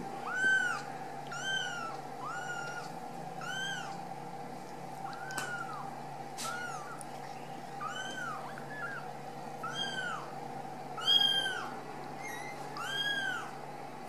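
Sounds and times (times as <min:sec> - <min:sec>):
kittens mewing: 0:00.2 - 0:04.0, 0:05.0 - 0:07.1, 0:07.7 - 0:10.4, 0:11.0 - 0:13.6.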